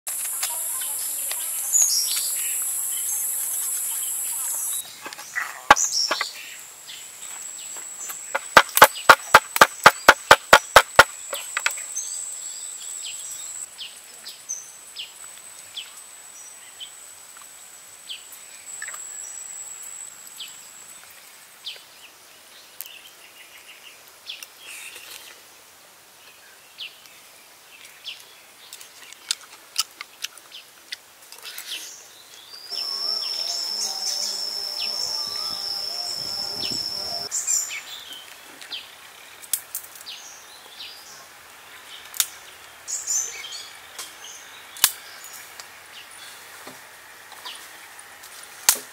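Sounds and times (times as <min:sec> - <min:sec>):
birds chirping: 0:00.1 - 0:14.4, 0:31.4 - 0:46.5
cleaver chopping: 0:08.4 - 0:11.8
high steady buzz: 0:32.7 - 0:37.3.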